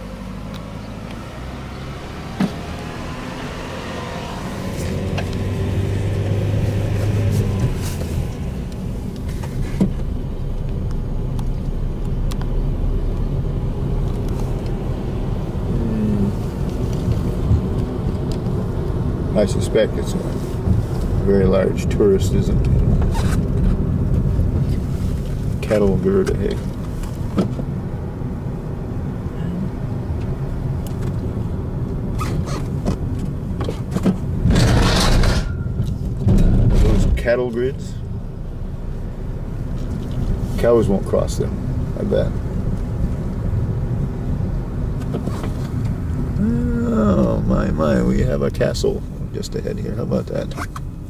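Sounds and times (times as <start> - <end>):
car engine and tyre rumble: 0.0 - 51.0
knocks and rattles: 33.6 - 37.2.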